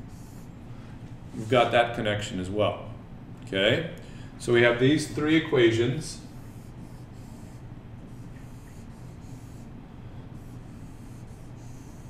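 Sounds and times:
steady low hum: 0:00.0 - 0:12.0
marker squeaking on whiteboard: 0:06.5 - 0:09.6.

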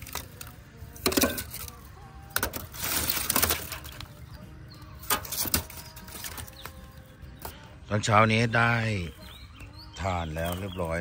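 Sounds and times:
charcoal sticks clinking: 0:00.0 - 0:04.3, 0:04.9 - 0:07.6, 0:10.0 - 0:11.0.

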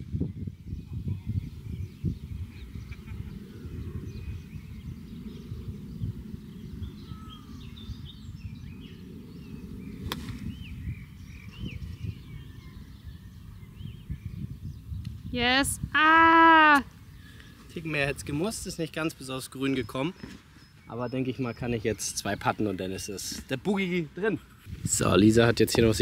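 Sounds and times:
wind rumble on microphone: 0:00.0 - 0:19.2, 0:24.4 - 0:26.0
birds chirping: 0:00.0 - 0:26.0
golf club striking ball: 0:10.0 - 0:10.5.

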